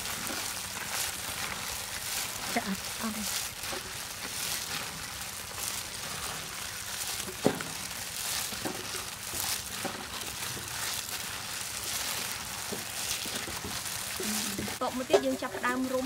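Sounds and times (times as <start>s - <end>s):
plastic gloves crinkling: 0.0s - 16.0s
squishing of mixture: 0.0s - 16.0s.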